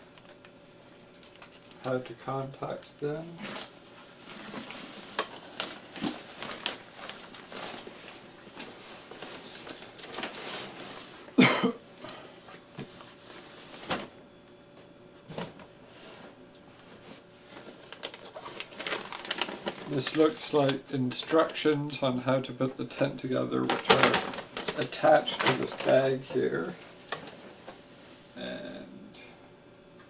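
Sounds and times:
bag and cardboard rustling: 3.1s - 11.5s, 16.9s - 20.8s.

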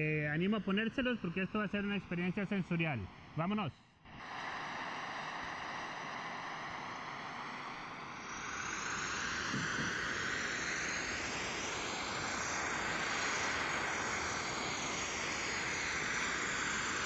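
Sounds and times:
rainforest ambience hiss: 4.1s - 17.0s.

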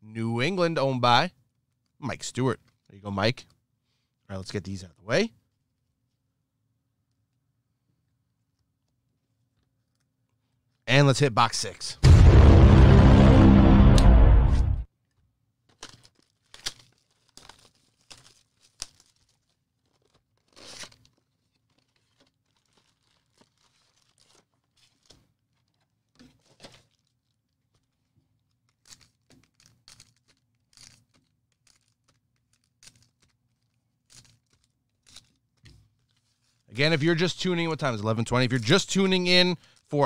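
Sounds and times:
music: 12.0s - 14.8s
wrappers tearing and crinkling: 15.7s - 36.7s.

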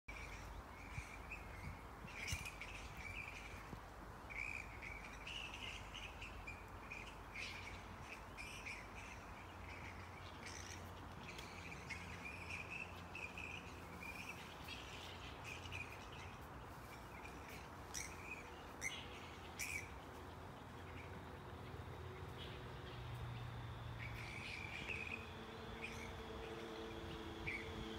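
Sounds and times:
flying foxes squawking: 4.4s - 20.0s, 22.3s - 27.9s.

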